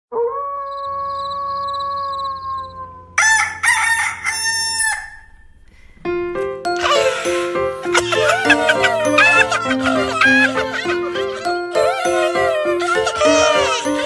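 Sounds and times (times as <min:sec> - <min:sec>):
rooster crowing: 0:00.4 - 0:05.4
music: 0:05.4 - 0:14.0.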